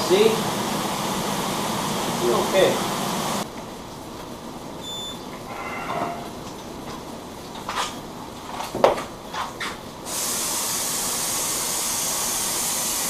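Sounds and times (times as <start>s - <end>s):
spray gun hissing: 10.1s - 13.0s.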